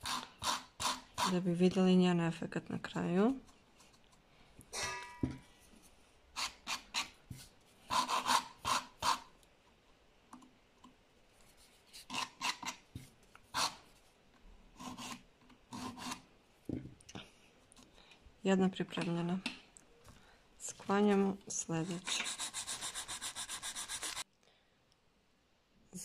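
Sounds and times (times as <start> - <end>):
nail file scraping plastic: 11.9 - 13.9, 21.8 - 24.2.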